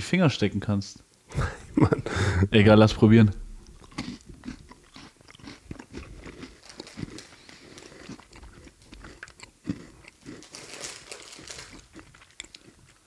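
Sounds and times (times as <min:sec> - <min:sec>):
people chewing crunchy biscuit: 0:03.6 - 0:13.0.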